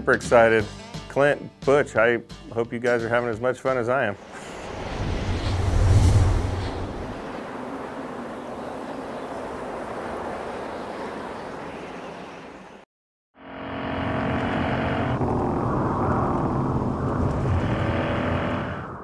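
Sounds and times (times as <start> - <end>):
steady rushing noise: 4.2 - 10.8.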